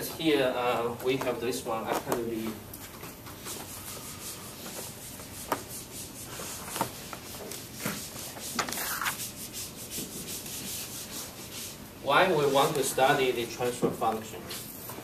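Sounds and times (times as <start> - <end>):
eraser rubbing on whiteboard: 3.5 - 12.9.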